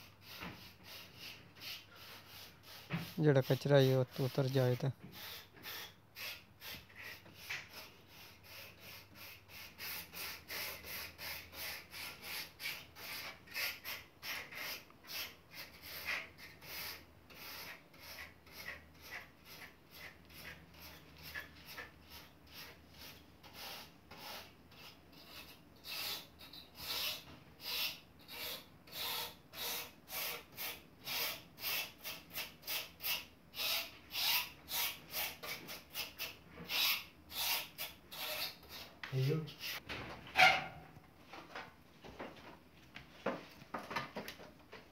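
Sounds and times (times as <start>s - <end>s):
brush scrubbing metal fins: 0.2s - 4.8s.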